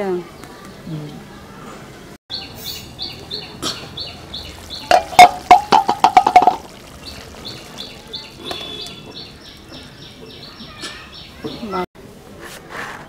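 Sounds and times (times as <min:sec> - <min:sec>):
bird chirping: 0:02.3 - 0:11.8
metal pot lid clattering: 0:04.9 - 0:06.7.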